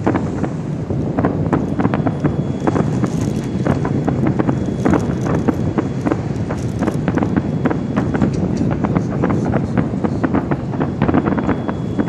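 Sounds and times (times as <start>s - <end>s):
fireworks bursting: 0.0s - 12.0s
steady low rumble: 0.0s - 12.0s.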